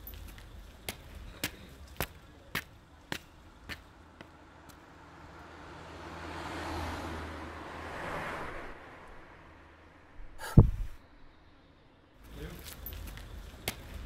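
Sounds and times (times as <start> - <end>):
car passing by: 4.9 - 11.0.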